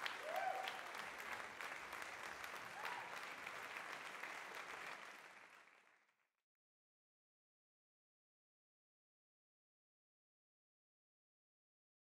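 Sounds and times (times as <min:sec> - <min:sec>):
faint applause: 0:00.0 - 0:06.2.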